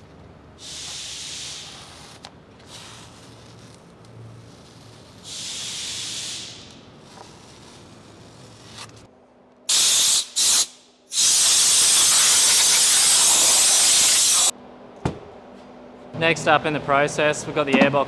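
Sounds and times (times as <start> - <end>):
compressed air blasts: 0.6 - 3.3, 4.9 - 8.1, 9.7 - 14.5.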